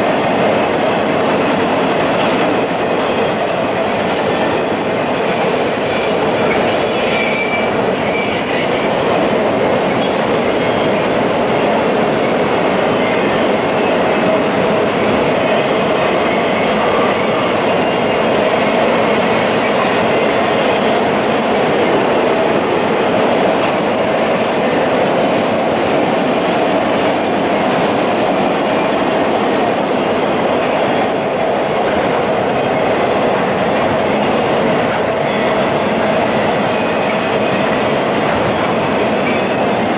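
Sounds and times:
train wheels rumbling on rail: 0.0s - 39.9s
high wheel squeals: 3.6s - 11.3s.

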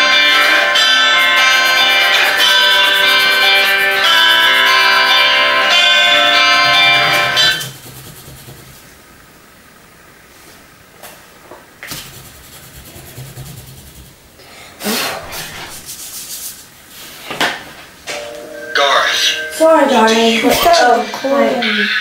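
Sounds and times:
paper scraping on table: 7.0s - 8.8s, 11.8s - 14.2s.

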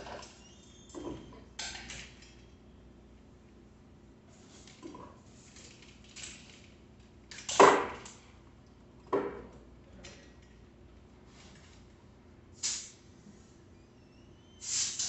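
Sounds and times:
tools and bicycle parts clattering: 0.0s - 2.6s, 4.6s - 8.3s.

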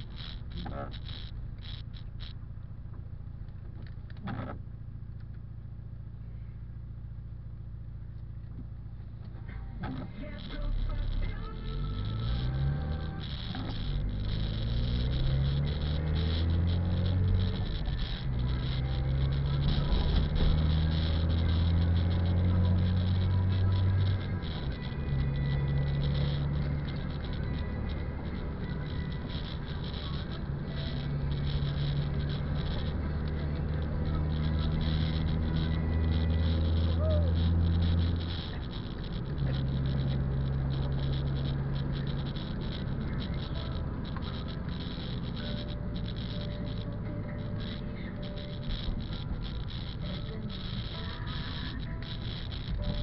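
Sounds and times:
car engine humming: 0.0s - 53.0s
raindrops pattering: 10.8s - 53.0s.

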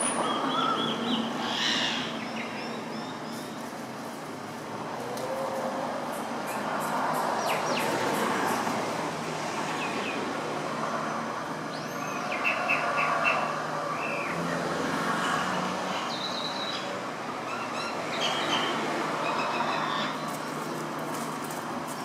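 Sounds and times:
birds chirping: 0.0s - 3.8s.

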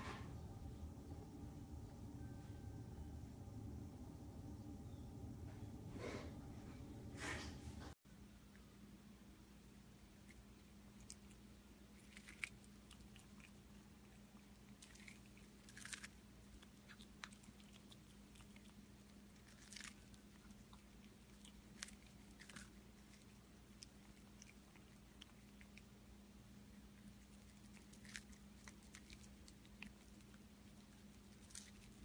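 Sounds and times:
low steady hum: 0.0s - 32.0s
cat crunching corn: 10.1s - 32.0s.

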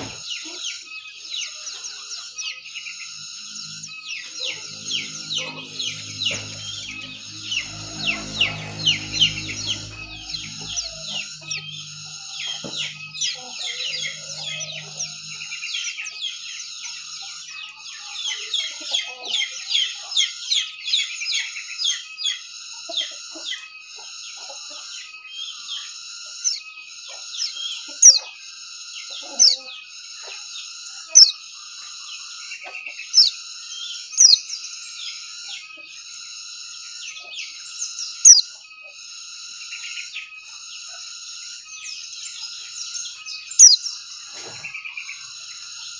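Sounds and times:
bird twittering song: 0.0s - 45.9s
high pulsing: 3.0s - 16.2s.

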